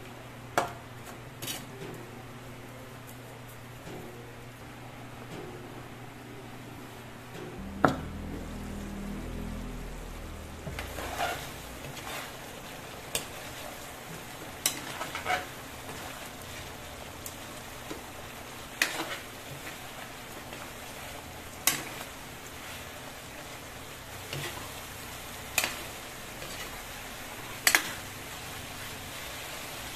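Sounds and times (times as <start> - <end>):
food sizzling in a pan: 7.8 - 29.9.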